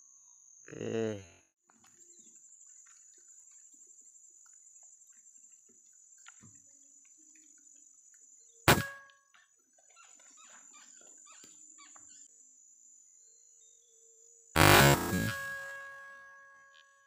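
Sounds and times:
air rifle shot: 8.7 - 9.0
high-pitched hum: 8.7 - 9.0, 14.6 - 16.3.

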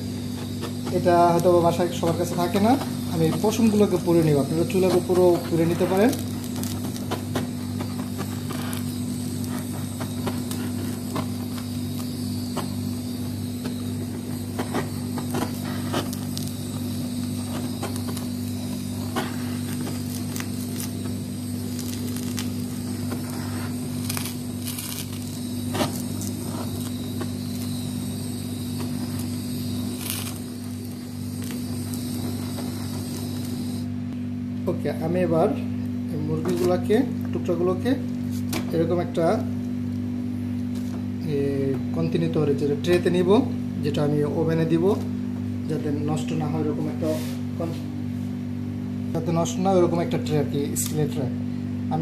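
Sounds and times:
blowtorch hissing: 0.0 - 34.2
steady low hum: 0.0 - 52.0.

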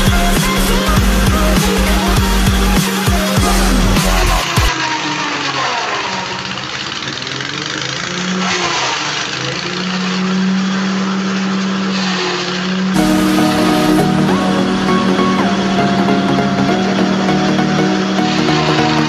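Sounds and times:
background music: 0.0 - 4.7, 13.0 - 19.0
grass chopper engine running: 0.0 - 19.0.

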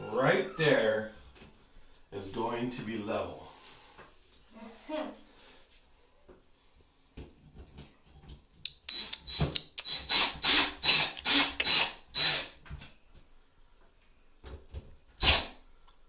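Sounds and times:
cordless drill driving screw: 8.9 - 12.6, 15.2 - 15.5.

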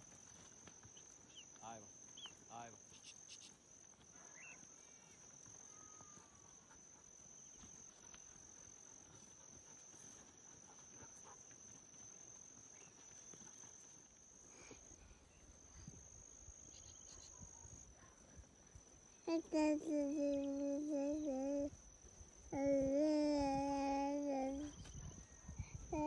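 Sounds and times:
high-pitched insect drone: 12.0 - 17.9, 18.7 - 26.0.

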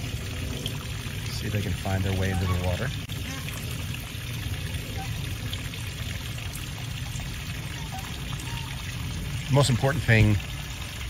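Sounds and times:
running water trickling: 0.0 - 11.0.

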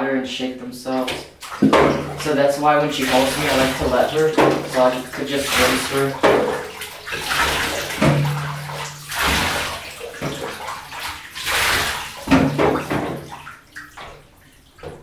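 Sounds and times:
water pouring into bath: 1.0 - 15.0.

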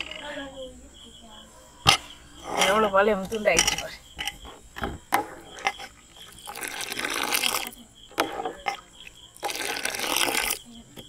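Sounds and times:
ladle scraping thick milk: 1.9 - 10.7.

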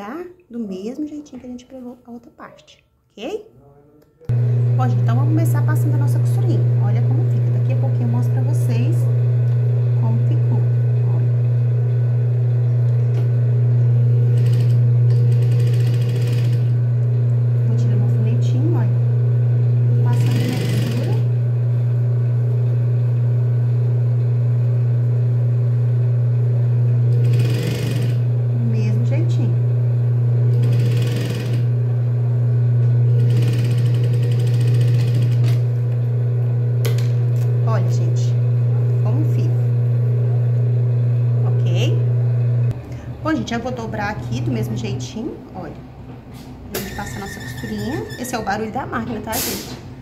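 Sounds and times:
sewing machine motor hum: 4.3 - 44.9
sewing machine stitching: 14.2 - 16.8, 20.0 - 21.3, 27.1 - 28.3, 30.5 - 31.8, 33.0 - 35.7, 46.7 - 48.6.

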